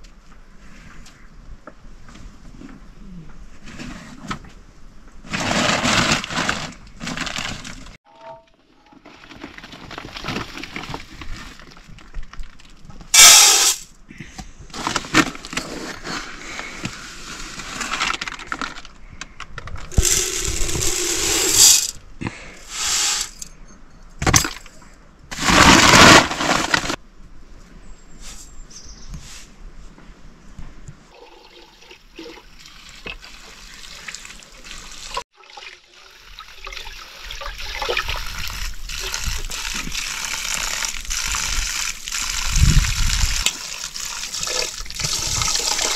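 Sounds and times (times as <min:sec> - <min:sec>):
plastic sack rustling: 0:05.3 - 0:08.0, 0:19.9 - 0:22.0, 0:25.3 - 0:27.0.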